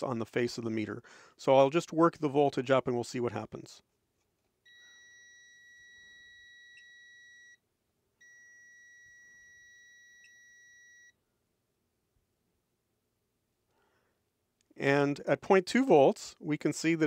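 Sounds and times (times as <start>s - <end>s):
multimeter continuity beeps: 4.6s - 7.6s, 8.2s - 11.2s.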